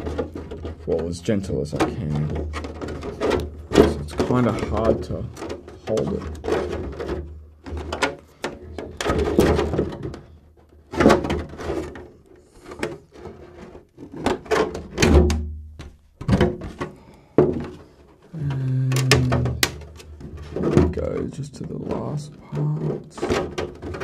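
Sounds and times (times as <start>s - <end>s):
thin plastic flexing clicks: 18.5s - 20.2s.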